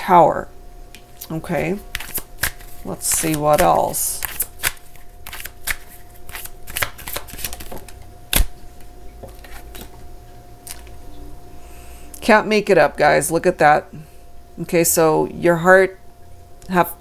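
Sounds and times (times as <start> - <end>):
cards shuffling softly clicking: 1.9 - 8.0
card snapping down: 1.9 - 8.5.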